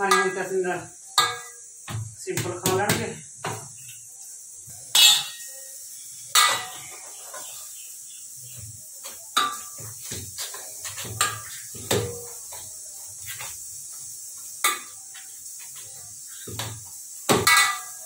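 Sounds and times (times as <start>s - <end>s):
dough being kneaded and slapped: 1.8s - 3.6s, 16.4s - 17.8s.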